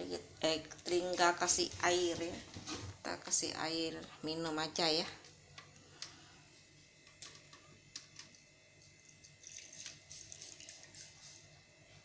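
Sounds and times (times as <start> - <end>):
water pouring over ice: 8.8 - 11.2.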